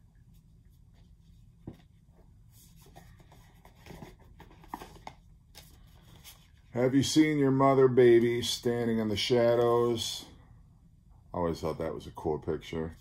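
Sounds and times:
paper sleeves rustling and tapping: 0:00.3 - 0:06.6.

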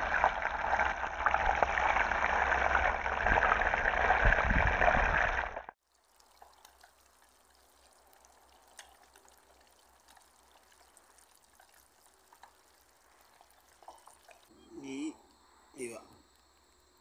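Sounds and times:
faint outdoor hiss: 0:05.8 - 0:17.0.

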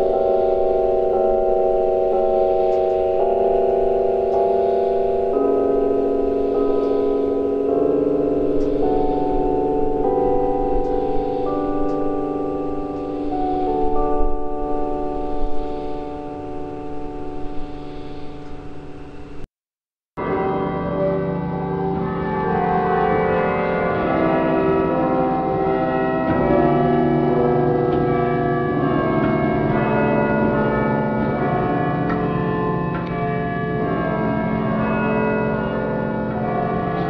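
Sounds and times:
organ-like held chords: 0:00.0 - 0:19.5.

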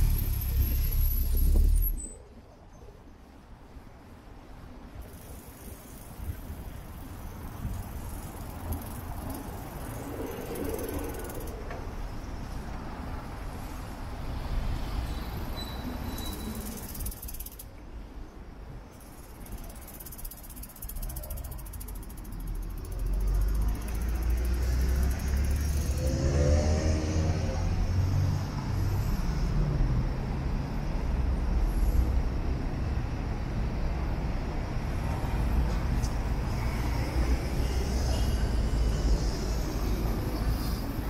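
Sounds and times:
motor vehicle rumble: 0:00.0 - 0:02.4
city street noise: 0:00.0 - 0:41.0
bicycle freewheel ticking: 0:05.0 - 0:11.6, 0:16.4 - 0:17.7, 0:19.0 - 0:26.0.

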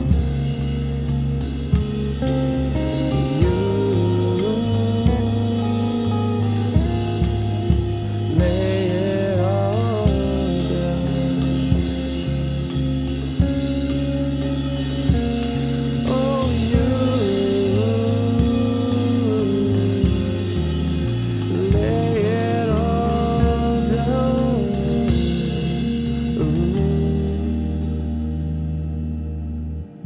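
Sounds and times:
drum beat: 0:00.0 - 0:14.3
guitar: 0:00.0 - 0:30.0.

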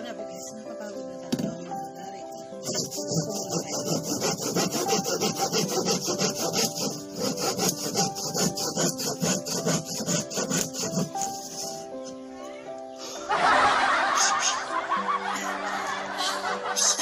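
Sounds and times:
hand saw cutting wood: 0:02.6 - 0:11.8, 0:16.8 - 0:17.0.

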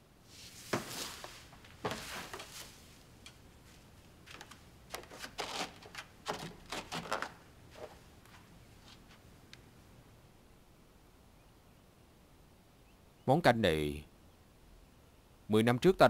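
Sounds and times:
cloth rustling: 0:00.3 - 0:09.2.

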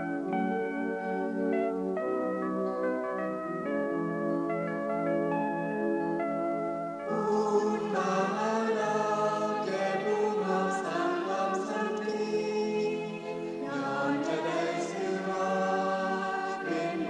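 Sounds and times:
choir singing long notes: 0:07.1 - 0:17.0.

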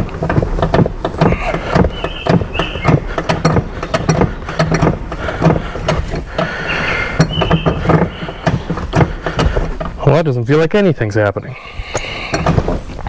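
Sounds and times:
metallic clicks and knocks: 0:00.0 - 0:10.1, 0:11.9 - 0:13.0
short squeaks: 0:01.2 - 0:03.5, 0:06.5 - 0:09.9.

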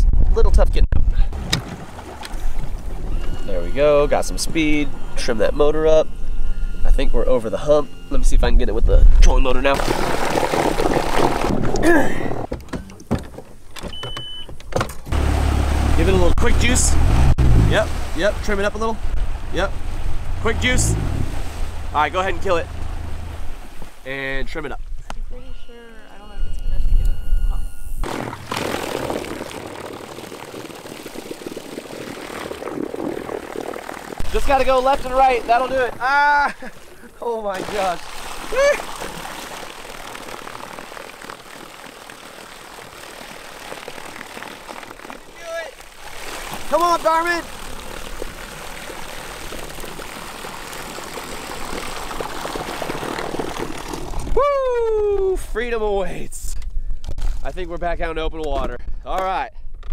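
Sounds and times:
trolling motor churning water: 0:01.3 - 0:24.8, 0:28.0 - 0:54.5
low motor rumble: 0:15.1 - 0:28.0
man calling out: 0:37.2 - 0:38.9, 0:45.4 - 0:45.8.

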